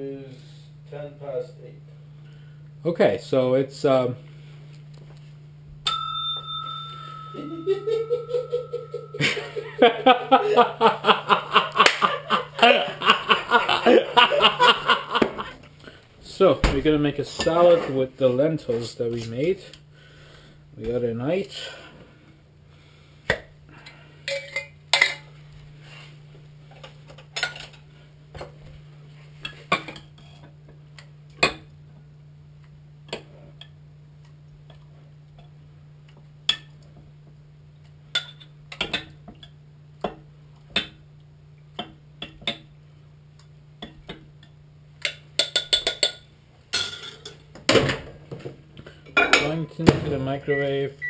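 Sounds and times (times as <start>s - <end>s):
steady low hum: 0.0s - 49.8s.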